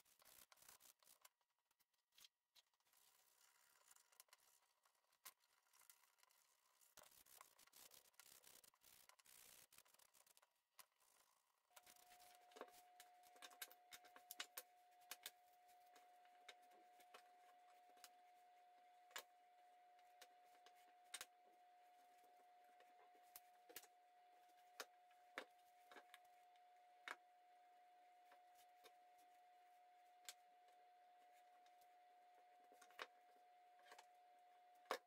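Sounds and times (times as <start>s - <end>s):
faint steady whine: 11.1s - 35.0s.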